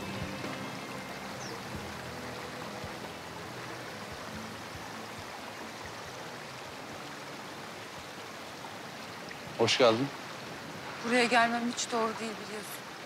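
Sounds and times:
stream flowing over stones: 0.0s - 13.0s.

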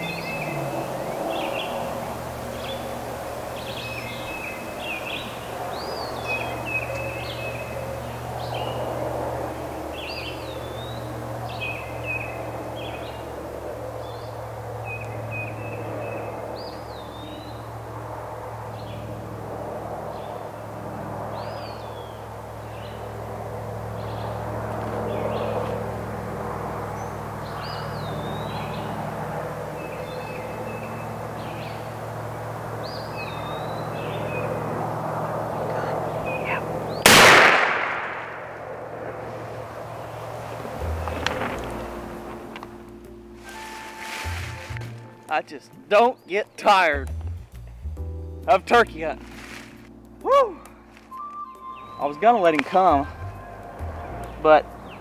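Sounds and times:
songbirds chirping and whistling: 0.0s - 18.0s, 21.3s - 23.2s, 26.8s - 38.5s, 43.4s - 47.0s, 50.2s - 55.0s
steady low hum: 0.0s - 45.3s.

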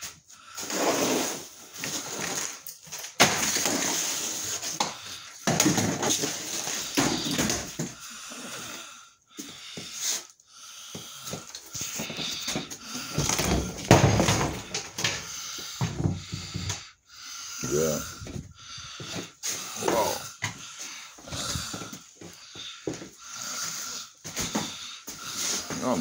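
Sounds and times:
heavy breathing: 4.3s - 26.0s
footsteps: 17.9s - 26.0s.

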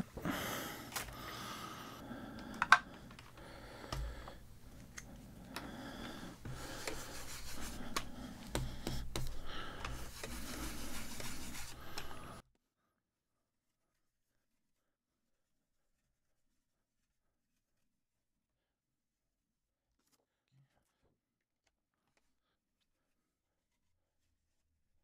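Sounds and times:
plastic cases clicking and tapping: 2.5s - 4.1s
plastic stencil sheets rubbing: 6.4s - 12.4s.

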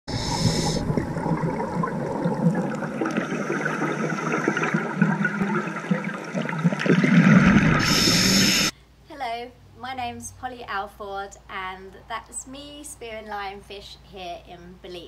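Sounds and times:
underwater regulator bubbles gurgling: 0.1s - 8.7s.

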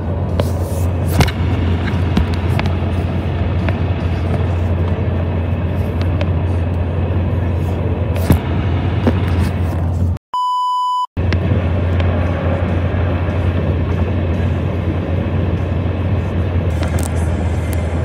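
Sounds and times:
car road and engine noise: 0.0s - 10.2s, 11.2s - 18.0s
steady electronic beep: 10.4s - 11.1s.

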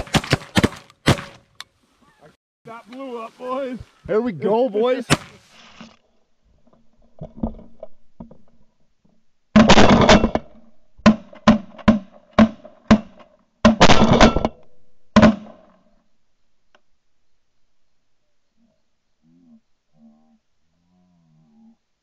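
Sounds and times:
shotgun blasts: 0.0s - 1.4s, 5.0s - 5.4s, 9.6s - 14.6s.

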